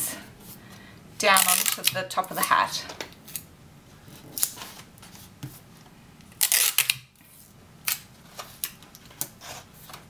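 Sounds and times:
tape crinkling and clicking: 1.4 - 2.5, 6.2 - 7.2, 7.8 - 10.0.

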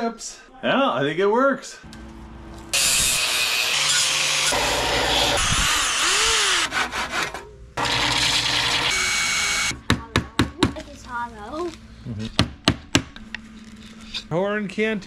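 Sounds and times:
power tools running on wood: 2.7 - 9.8
hand saw cutting wood: 2.8 - 8.9.

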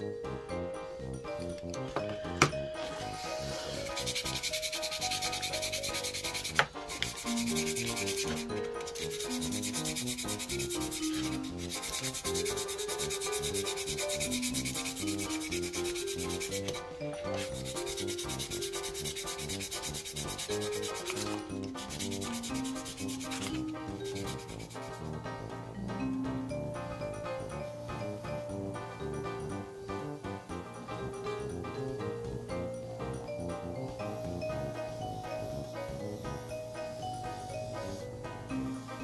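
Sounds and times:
sandpaper rubbing wood: 2.8 - 25.3.

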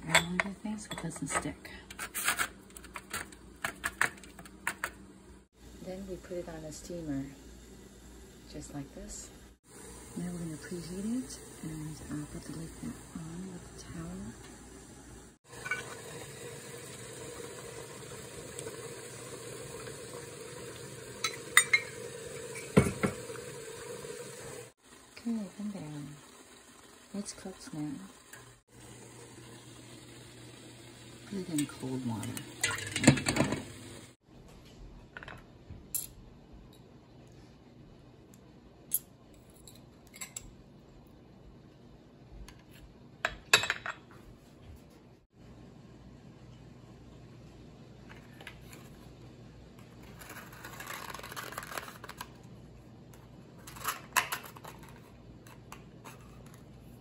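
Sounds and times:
ladle clinking on metal tins: 0.0 - 1.6, 21.2 - 23.2, 31.6 - 33.7.

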